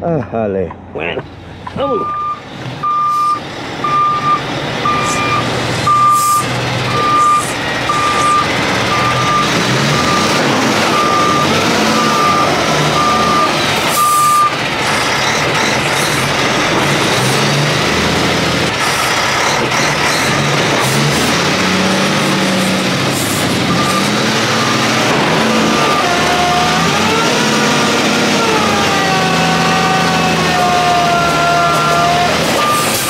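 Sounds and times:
truck diesel engine running: 0.8 - 33.0
reverse alarm beeping: 1.9 - 14.6, 23.7 - 25.0, 32.6 - 33.0.

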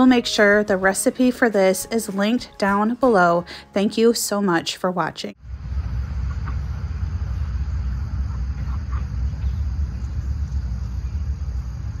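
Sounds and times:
low rumble: 5.4 - 12.0
insect chirring: 6.5 - 12.0.

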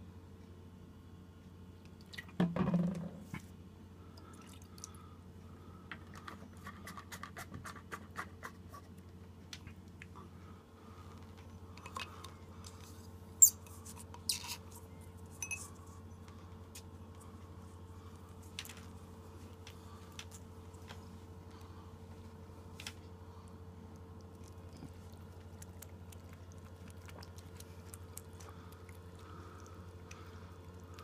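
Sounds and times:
steady low hum: 0.0 - 31.0
cat licking wet clicks: 23.8 - 31.0.

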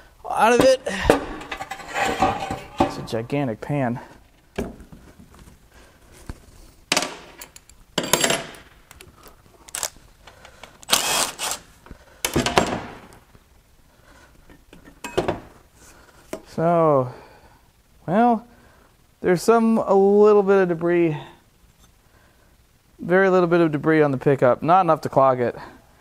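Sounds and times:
metal parts and tools knocking: 0.6 - 3.2
cordless power wrench running: 10.9 - 11.6.

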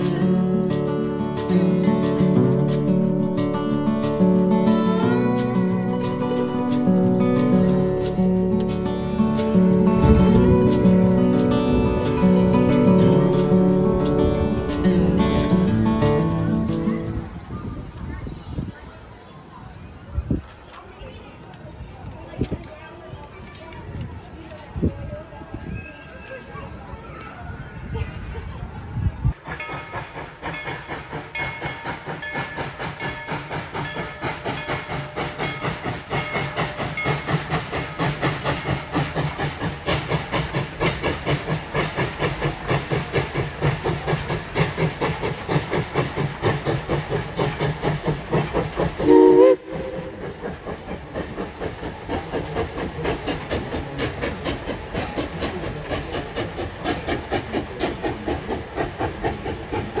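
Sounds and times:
train wheels clattering: 0.0 - 17.6, 27.9 - 60.0
steam whistle blast: 49.0 - 50.2.

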